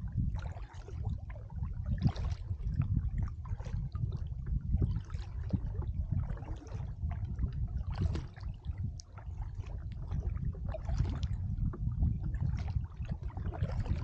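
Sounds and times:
wind on microphone: 0.0s - 14.0s
paddle splashing in water: 0.3s - 14.0s.

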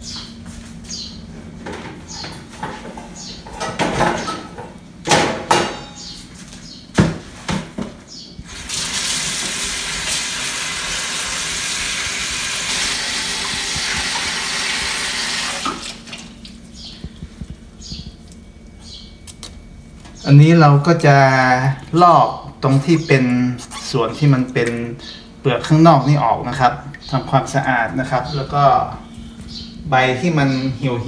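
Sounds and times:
bowls clattering in steel sink: 2.6s - 6.0s
kitchen tap running into sink: 8.4s - 16.5s
greens being rinsed by hand: 8.4s - 18.8s.

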